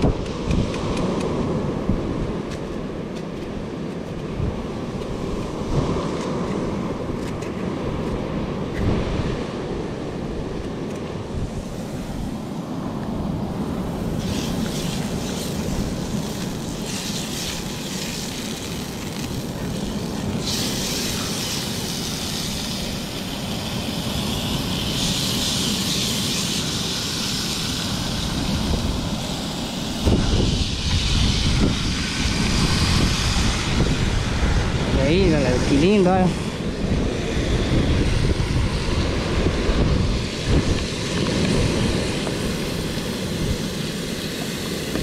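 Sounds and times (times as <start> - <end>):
wind buffeting the microphone: 0.0 - 45.0
fish sizzling in hot oil: 14.2 - 33.6.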